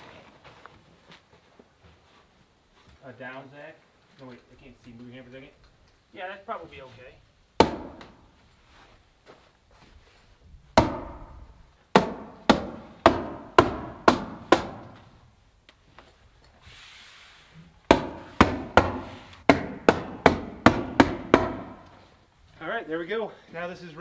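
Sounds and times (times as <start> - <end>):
hammer tacker strikes: 7.6 - 8.2, 10.8 - 11.4, 12.0 - 15.1, 17.9 - 21.9.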